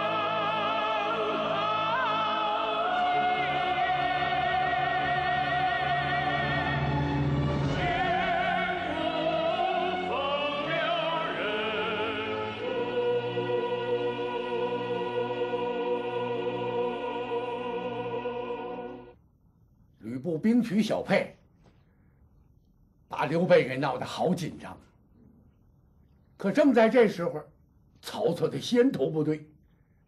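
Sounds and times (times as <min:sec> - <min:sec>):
operatic theme music: 0:00.0 - 0:19.1.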